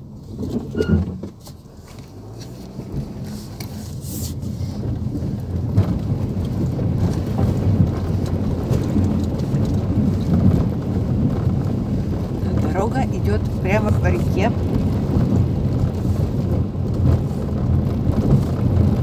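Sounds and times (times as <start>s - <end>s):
vehicle engine running under load: 0.0s - 19.0s
water churning against wheels: 0.0s - 19.0s.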